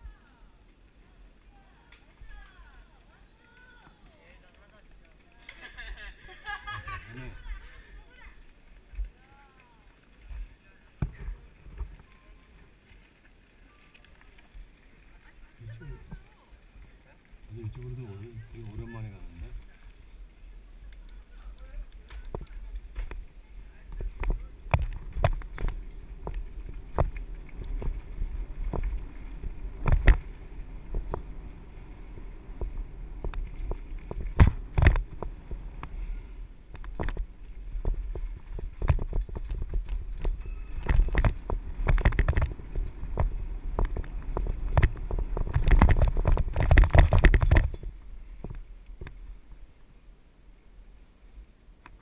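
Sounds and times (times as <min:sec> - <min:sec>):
bike tyres on gravel: 0:00.0 - 0:51.0
bike rattling over bumps: 0:21.1 - 0:49.2.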